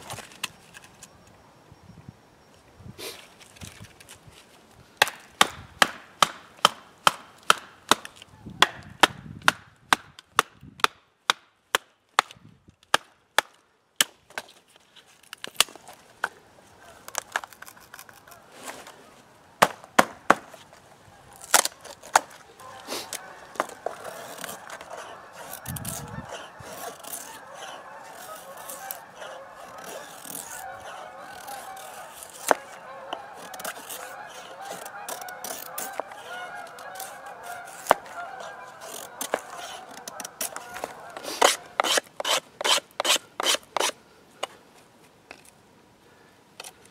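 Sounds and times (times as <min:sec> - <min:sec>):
wood splitting cracks: 0:05.0 - 0:14.6, 0:15.2 - 0:16.4, 0:17.0 - 0:18.4, 0:19.6 - 0:20.7, 0:21.3 - 0:44.0
geese honking: 0:20.9 - 0:43.9.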